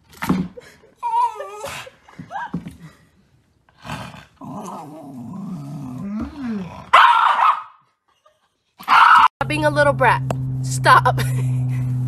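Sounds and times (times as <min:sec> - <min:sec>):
dog growling and snarling: 0:03.7 - 0:07.0.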